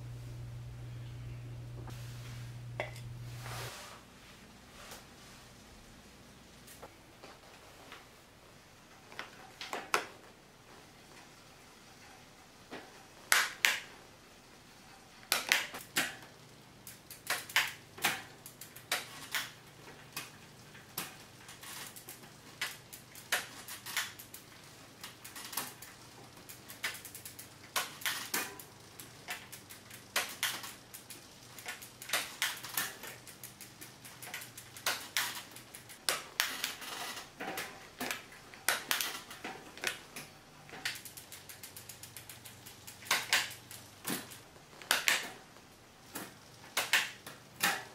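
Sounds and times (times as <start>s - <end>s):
faint low hum: 0.0s - 13.3s.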